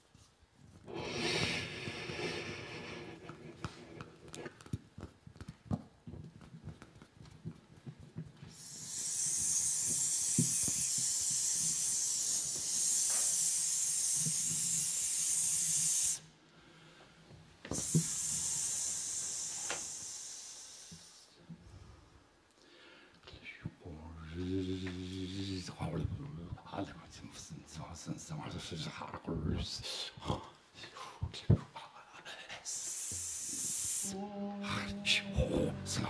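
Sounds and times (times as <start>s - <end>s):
airy hiss through microphone: 0.0s - 4.6s, 7.9s - 16.9s, 17.6s - 22.1s, 30.8s - 36.0s.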